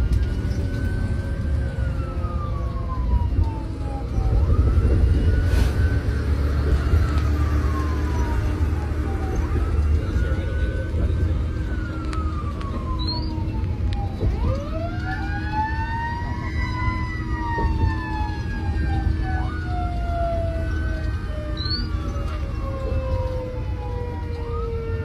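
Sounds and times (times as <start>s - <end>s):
engine and road rumble: 0.0s - 25.0s
fire engine wail siren: 0.0s - 25.0s.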